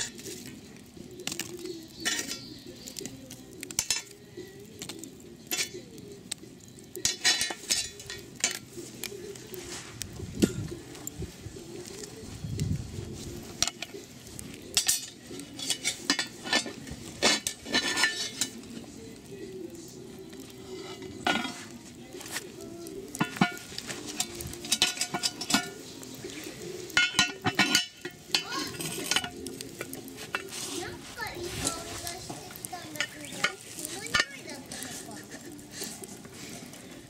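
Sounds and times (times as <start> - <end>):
metal clinks on cast-iron pot lid: 2.0 - 2.6, 3.7 - 4.2, 5.5 - 5.8, 7.0 - 8.7, 14.8 - 18.6, 23.2 - 25.8, 26.9 - 30.5.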